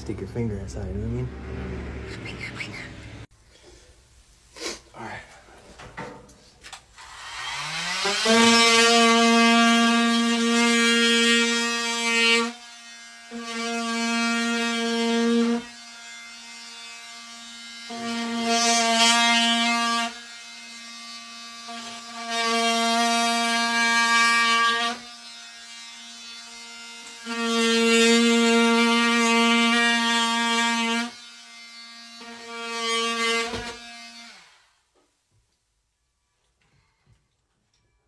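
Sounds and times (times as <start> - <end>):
oscillating multi-tool cutting drywall: 7.0 - 34.8.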